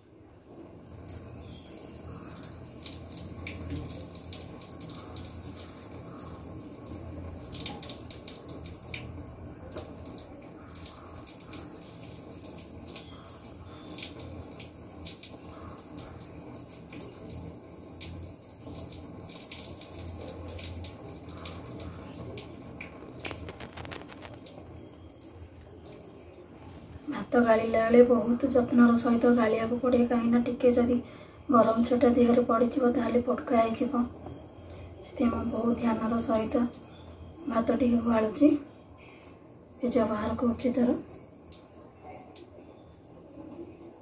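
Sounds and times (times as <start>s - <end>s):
water pouring from a metal pot: 0.8s - 26.3s.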